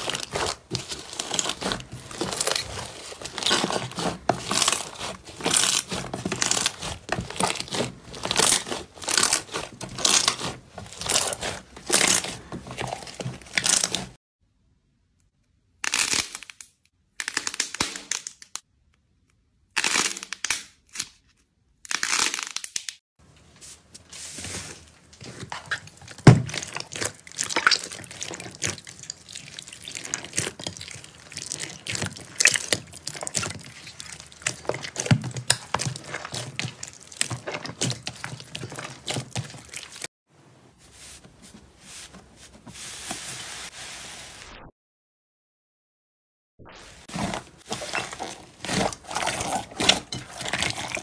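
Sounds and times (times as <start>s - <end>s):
slime crackling and popping: 0.0s - 14.1s, 25.8s - 40.0s.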